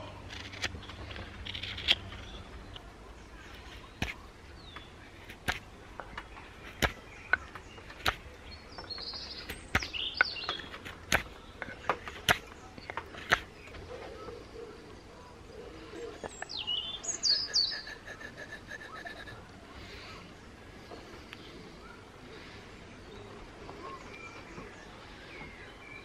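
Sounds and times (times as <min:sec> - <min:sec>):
birds chirping: 0:00.0 - 0:26.0
knife whittling wood: 0:00.3 - 0:02.4, 0:05.2 - 0:05.7, 0:06.6 - 0:08.3, 0:09.4 - 0:13.5.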